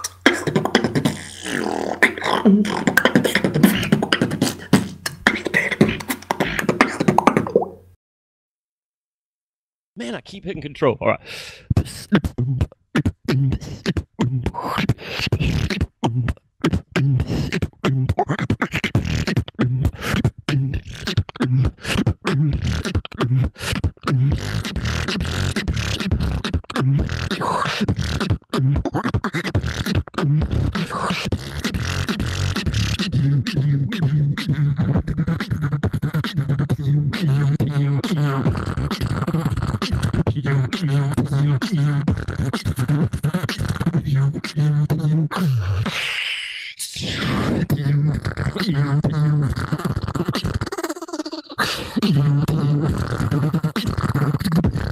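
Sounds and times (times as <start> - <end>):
beatboxing: 0.0 - 7.8, 10.0 - 54.9.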